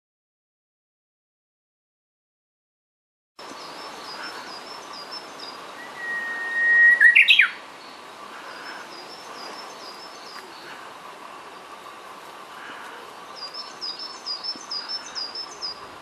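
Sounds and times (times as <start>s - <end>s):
bird singing whistled song: 4.6s - 7.6s.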